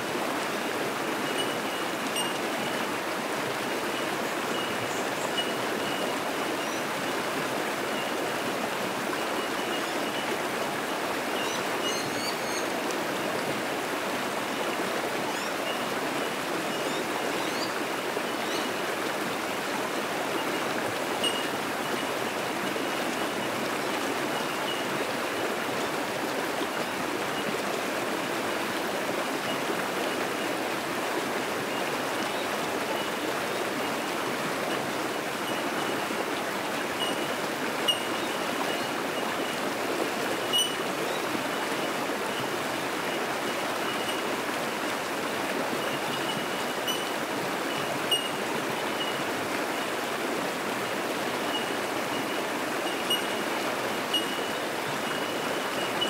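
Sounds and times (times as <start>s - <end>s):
creek rushing over rocks: 0.0s - 56.0s
high bell-like bird pings: 1.3s - 2.4s, 21.2s - 21.5s, 40.5s - 40.8s, 48.1s - 48.4s, 52.9s - 53.5s, 54.1s - 56.0s.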